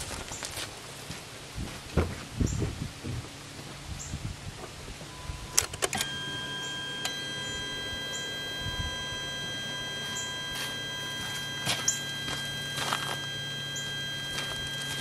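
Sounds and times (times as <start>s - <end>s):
high-pitched electrical whine: 5.0s - 15.0s
relay clicks: 5.6s - 6.2s.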